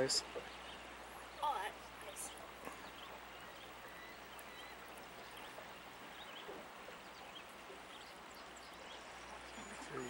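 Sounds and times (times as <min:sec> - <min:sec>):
flowing river water: 0:00.0 - 0:10.0
faint high chirps: 0:02.2 - 0:05.6.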